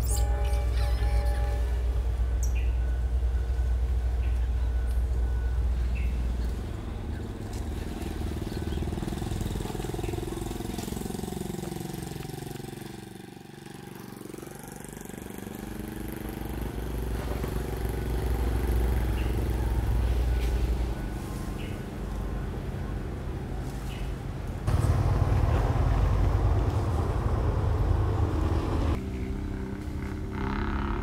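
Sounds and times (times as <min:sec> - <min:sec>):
vehicle engine rumble: 0:00.0 - 0:31.0.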